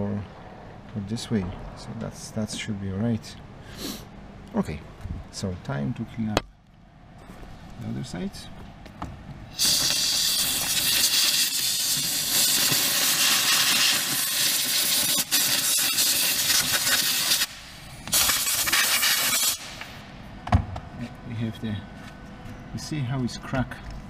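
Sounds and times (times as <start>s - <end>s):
aerosol spray hissing: 9.6s - 17.6s.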